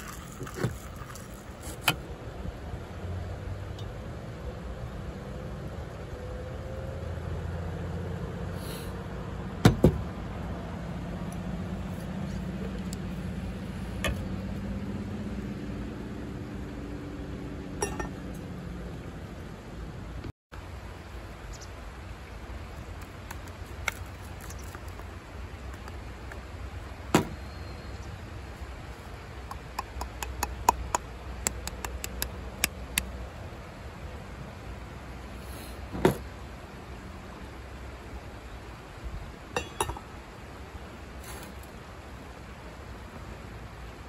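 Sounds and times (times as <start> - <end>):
ceramic dripper clinking on surface: 17.8 - 18.2, 39.6 - 40.0.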